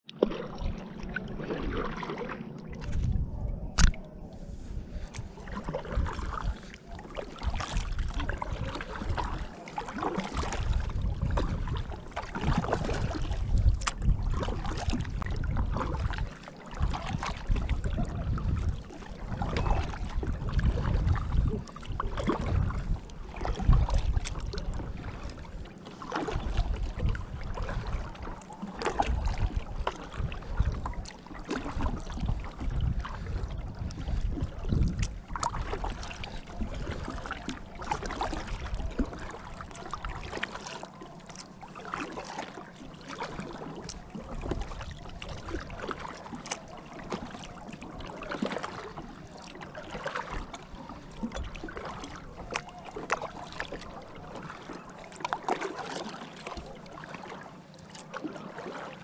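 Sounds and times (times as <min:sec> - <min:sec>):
paddle strokes in water: 0:00.0 - 0:59.0
water washing along hull: 0:00.0 - 0:59.0
wind rumble on microphone: 0:00.2 - 0:40.5, 0:43.4 - 0:46.6
water dripping off paddle: 0:05.1 - 0:17.8, 0:33.8 - 0:58.9.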